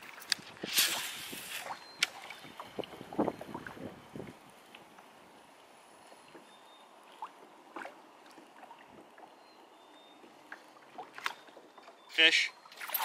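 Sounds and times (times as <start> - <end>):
water lapping against kayak hull: 6.3 - 12.1.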